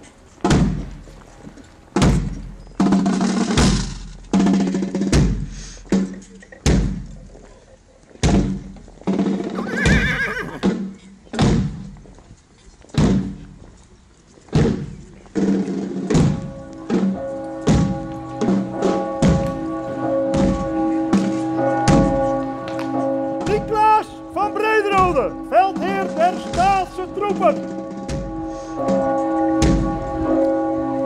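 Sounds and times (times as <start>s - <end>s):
horse whinnying: 9.4s - 10.8s
slow ringing drum beat: 14.6s - 19.7s, 20.3s - 22.5s, 25.0s - 30.1s.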